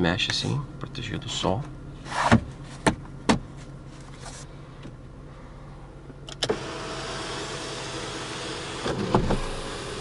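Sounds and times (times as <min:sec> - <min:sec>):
electric motor whirring: 0:06.4 - 0:10.0.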